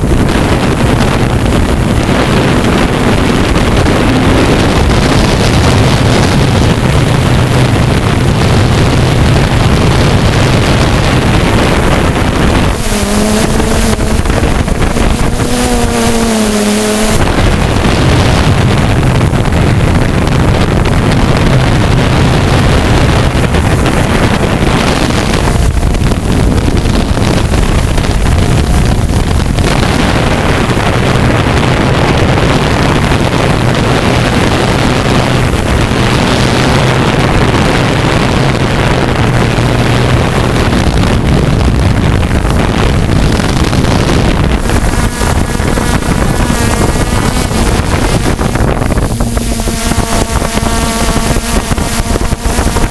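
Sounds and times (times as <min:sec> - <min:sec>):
drone motors and propellers: 0:00.0 - 0:52.9
wind buffeting microphone: 0:00.0 - 0:52.9.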